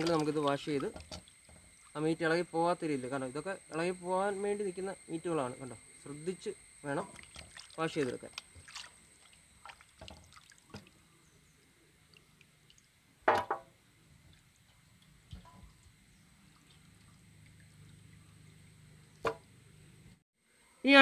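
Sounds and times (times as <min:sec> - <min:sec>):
water sloshing and dripping: 0:00.0 - 0:02.8, 0:05.5 - 0:13.1, 0:13.8 - 0:19.9.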